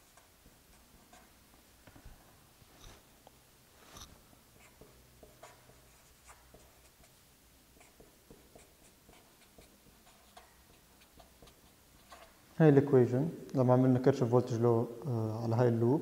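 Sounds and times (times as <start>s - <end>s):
marker writing on paper: 0.0s - 1.4s, 3.9s - 12.4s.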